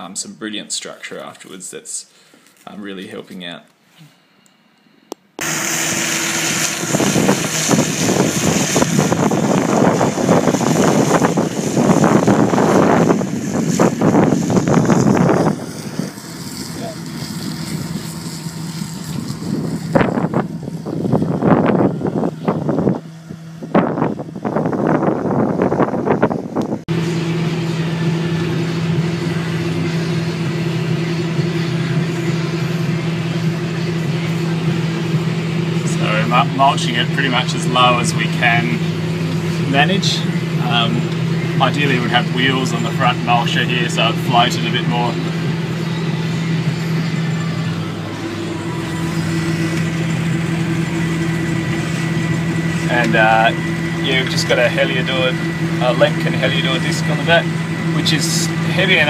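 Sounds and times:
dense crackle of mulching: 0:05.4 - 0:21.3, 0:33.9 - 0:59.0
tractor engine under load: 0:05.4 - 0:59.0.

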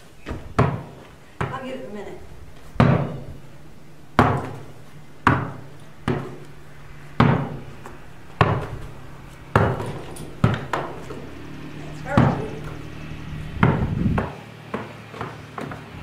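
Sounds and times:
basketball bouncing on floor: 0:00.2 - 0:01.7, 0:02.7 - 0:03.2, 0:04.2 - 0:06.5, 0:07.2 - 0:07.6, 0:08.4 - 0:08.8, 0:09.5 - 0:11.0, 0:13.6 - 0:15.9.

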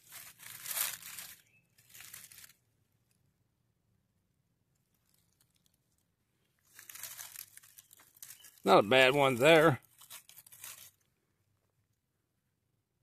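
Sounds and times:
dry leaves rustling: 0:00.0 - 0:02.6, 0:06.6 - 0:11.1.

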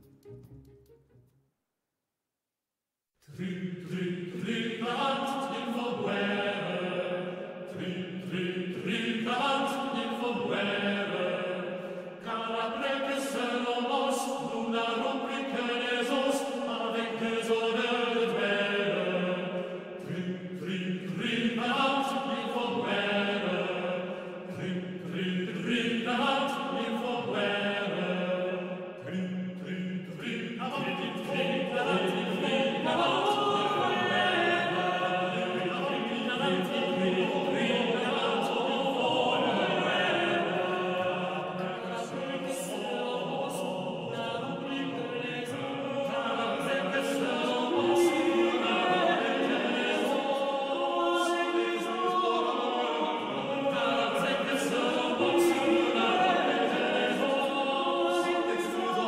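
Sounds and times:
choir singing chant-like melody: 0:03.2 - 0:59.0.

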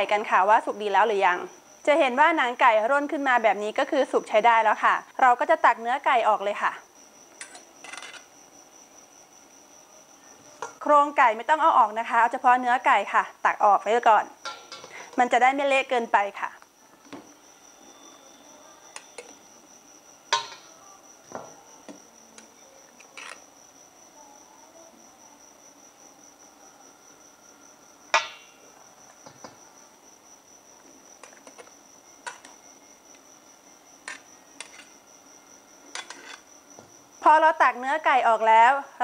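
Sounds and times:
steady high-pitched whine: 0:15.5 - 0:38.5
ladle clinking against pot: 0:20.3 - 0:20.7.

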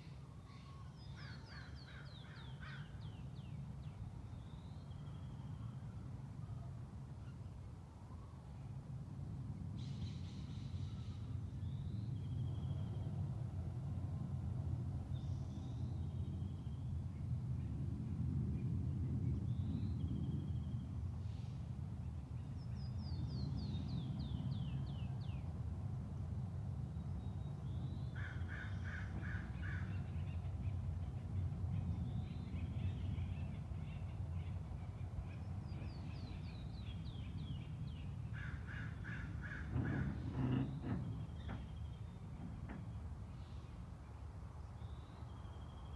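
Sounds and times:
birdsong: 0:26.9 - 0:45.9.

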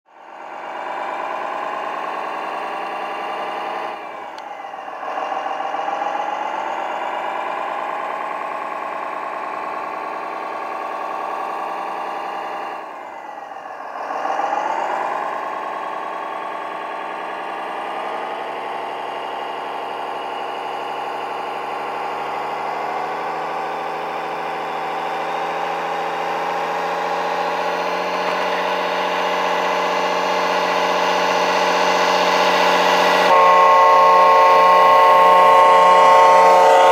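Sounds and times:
toy truck engine sound: 0:00.1 - 0:36.9.

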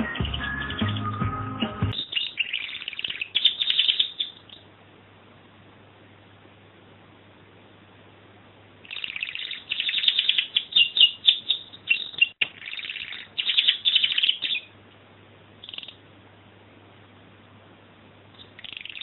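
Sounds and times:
canary singing trills: 0:00.0 - 0:04.7, 0:08.8 - 0:14.8, 0:15.6 - 0:16.0, 0:18.4 - 0:19.0.

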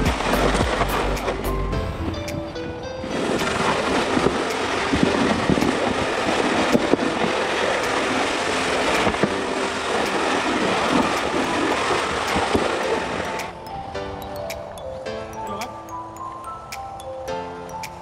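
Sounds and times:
sled scraping over snow: 0:03.1 - 0:13.3.

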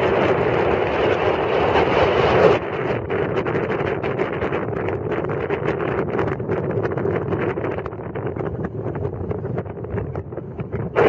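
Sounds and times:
water: 0:00.0 - 0:11.0
wind buffeting microphone: 0:00.0 - 0:11.0.

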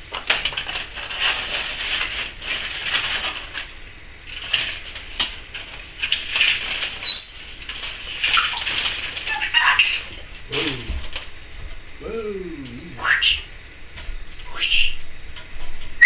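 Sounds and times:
parrot whistle: 0:07.0 - 0:07.4
parrot hissing: 0:12.9 - 0:13.4.

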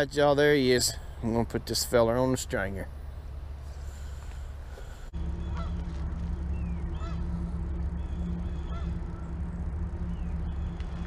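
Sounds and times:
steady low hum: 0:00.0 - 0:11.0
geese honking: 0:02.9 - 0:11.0.

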